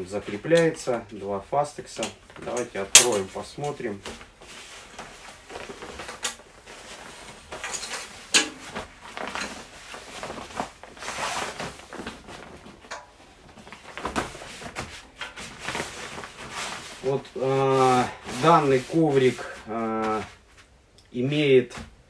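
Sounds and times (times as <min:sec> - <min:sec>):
fabric mat rustling and flapping: 0:02.2 - 0:20.8.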